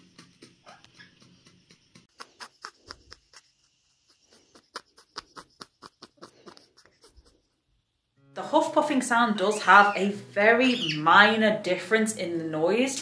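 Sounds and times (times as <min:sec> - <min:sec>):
parrot wheezing: 0:02.1 - 0:03.4, 0:04.1 - 0:07.6.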